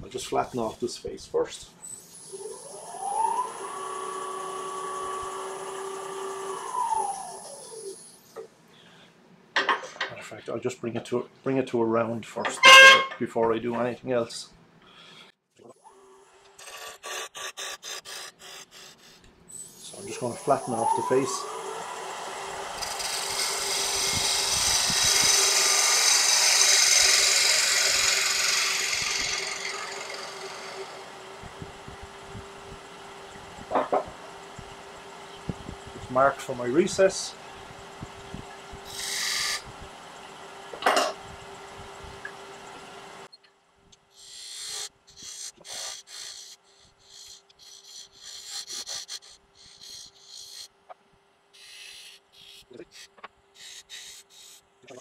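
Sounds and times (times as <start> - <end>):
gouge cutting spinning wood: 2.3 - 7.6, 19.7 - 34.6, 38.8 - 39.9, 44.2 - 50.7
lathe humming: 2.4 - 7.9, 19.8 - 40.0.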